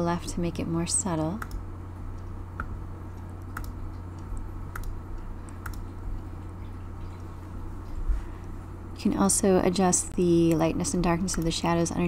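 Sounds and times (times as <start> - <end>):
steady low hum: 0.0 - 12.0
sharp computer clicks: 1.3 - 1.6, 2.2 - 6.0, 10.5 - 11.8.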